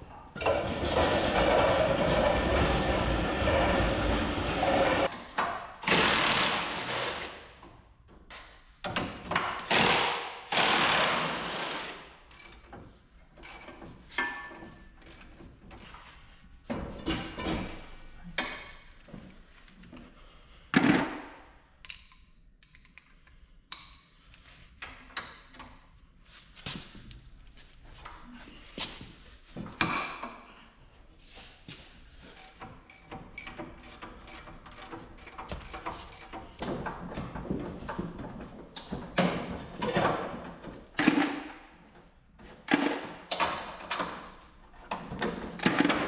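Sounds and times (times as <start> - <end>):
metal tools clanking and ratcheting: 12.3 - 16.1, 16.7 - 20.0, 32.3 - 38.3, 39.2 - 41.5, 42.8 - 46.0.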